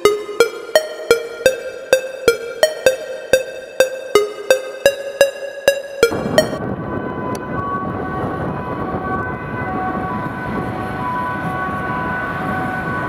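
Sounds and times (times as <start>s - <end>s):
two-tone emergency siren: 0.0s - 13.0s.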